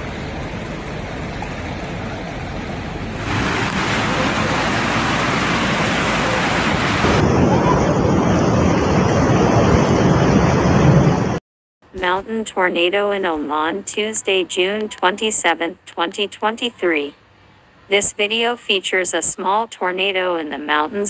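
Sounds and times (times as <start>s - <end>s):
floodwater rushing: 0.0s - 11.4s
heavy rain: 0.0s - 11.4s
wind buffeting microphone: 3.4s - 11.4s.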